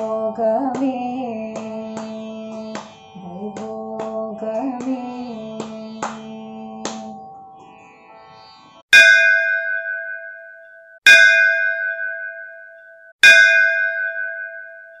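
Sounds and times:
bell ringing: 0:09.0 - 0:15.0.

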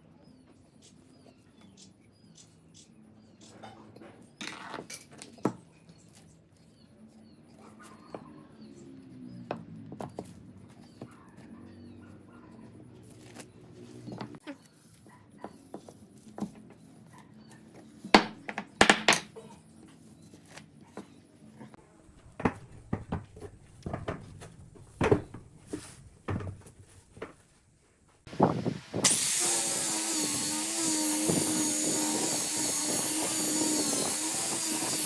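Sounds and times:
wooden pieces knocking together: 0:18.1 - 0:19.4.

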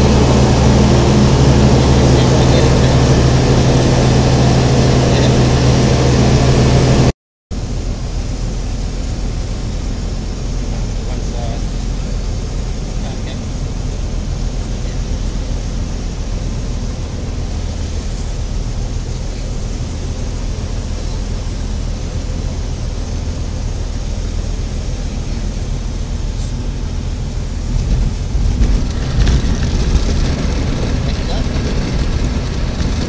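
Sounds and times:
light aircraft engine and propeller: 0:00.0 - 0:33.0.

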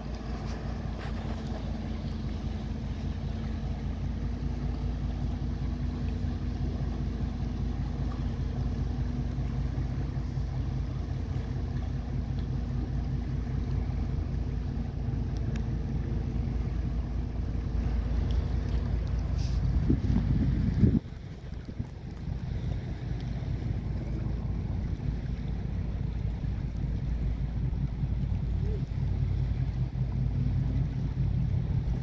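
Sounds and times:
low mechanical hum: 0:00.0 - 0:32.0
wind on microphone: 0:18.5 - 0:23.0.

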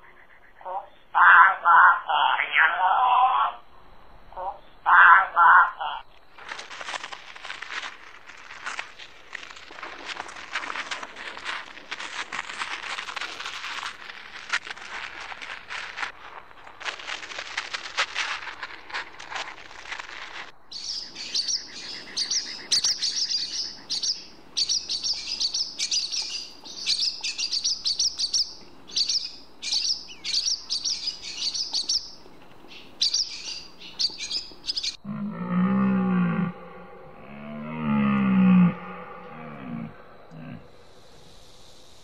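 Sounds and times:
wagtail chirping: 0:20.7 - 0:35.0
deer stag roaring: 0:35.0 - 0:40.7.

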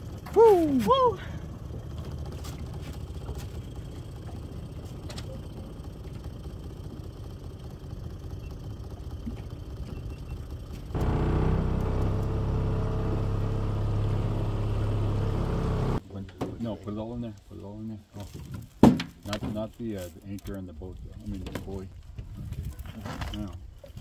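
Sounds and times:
outboard motor running: 0:00.0 - 0:16.0
low rumble: 0:11.0 - 0:16.0.

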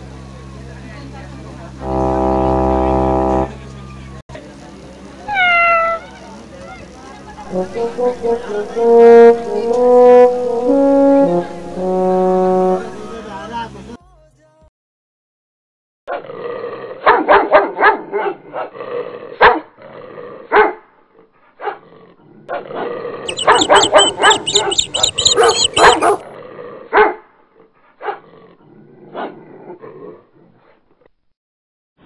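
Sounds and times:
dog barking: 0:17.0 - 0:18.7, 0:19.4 - 0:19.6, 0:20.5 - 0:20.8, 0:21.6 - 0:21.8, 0:23.3 - 0:26.2, 0:26.9 - 0:27.2, 0:28.0 - 0:28.2.

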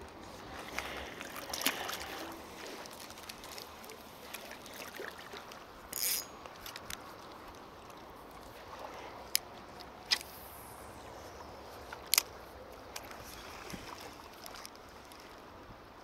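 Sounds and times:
water lapping at shore: 0:00.0 - 0:16.0
small splash: 0:00.6 - 0:05.6.

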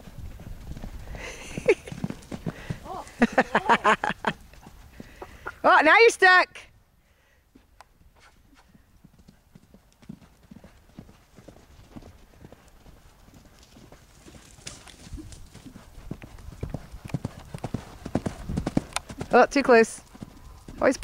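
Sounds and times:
horse hoofbeats on sand: 0:00.0 - 0:03.4, 0:08.6 - 0:21.0.

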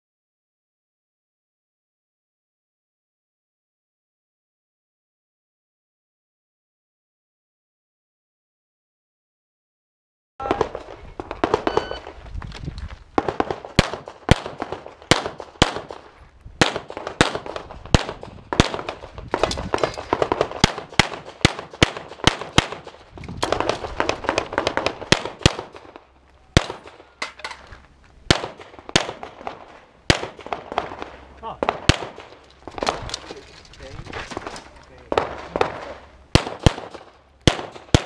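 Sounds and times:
electronic timer beep: 0:11.6 - 0:12.1
pistol shots: 0:13.2 - 0:27.1, 0:28.3 - 0:33.2, 0:35.1 - 0:38.0.

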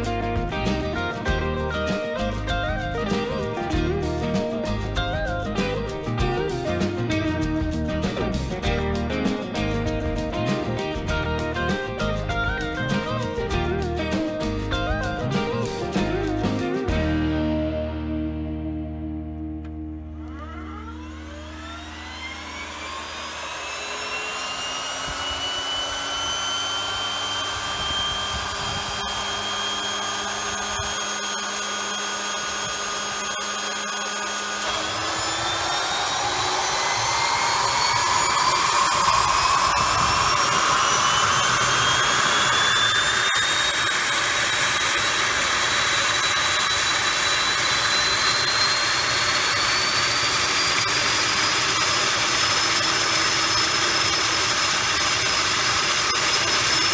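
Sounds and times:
turboprop turbine whine: 0:00.0 - 0:17.2, 0:19.6 - 0:56.9.

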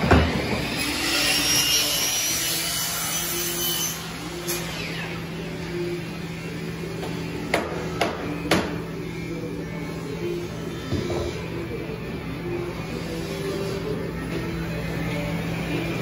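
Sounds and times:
machinery low hum: 0:04.2 - 0:16.0.

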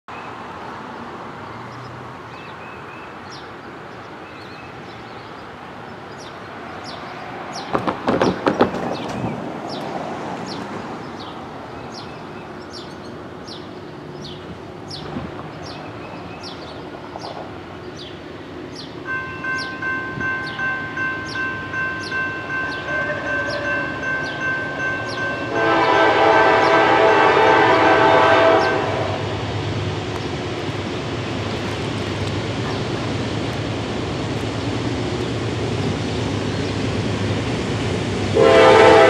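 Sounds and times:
bird chirping: 0:01.6 - 0:25.5
loud knocks and rustling: 0:07.7 - 0:09.4.

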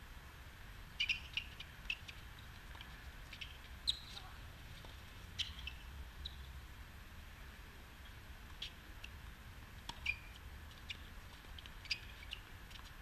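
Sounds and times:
sneakers squeaking on court: 0:03.3 - 0:04.2, 0:09.9 - 0:11.1.

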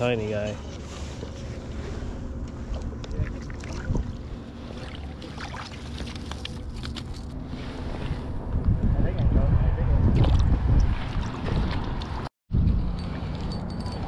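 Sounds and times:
wind noise on microphone: 0:07.4 - 0:14.0.

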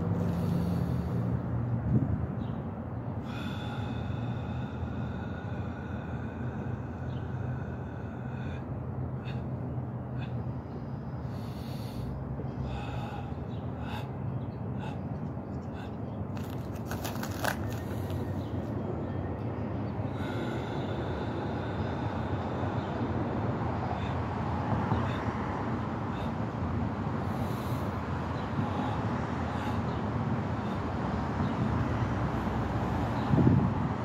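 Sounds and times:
street traffic hum: 0:00.0 - 0:34.0
sharp hissing breaths: 0:00.1 - 0:01.5, 0:03.1 - 0:18.7, 0:19.9 - 0:33.6.

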